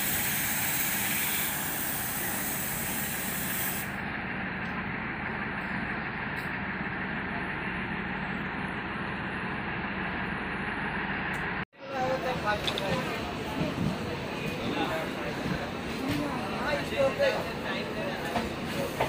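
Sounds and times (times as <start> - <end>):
steady air hiss: 0.0 - 3.9
low engine hum: 3.9 - 16.5.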